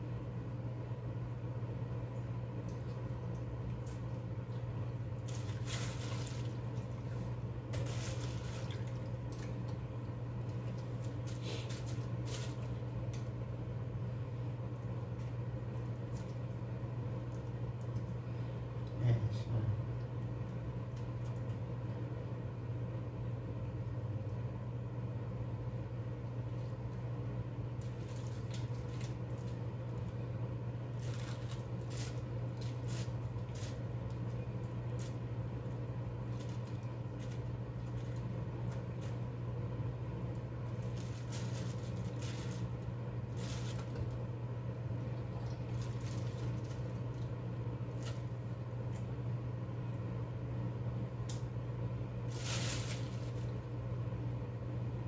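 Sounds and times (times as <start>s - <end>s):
steady low hum: 0.0s - 55.0s
wet squelching handling noises: 2.6s - 13.4s.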